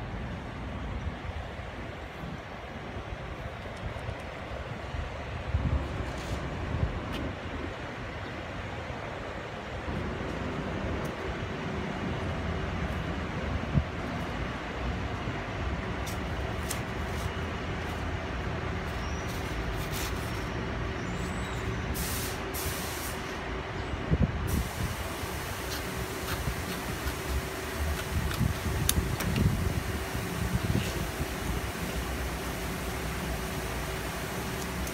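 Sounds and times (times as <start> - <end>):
low mechanical hum: 0.0 - 34.9
brief hiss: 22.0 - 23.4.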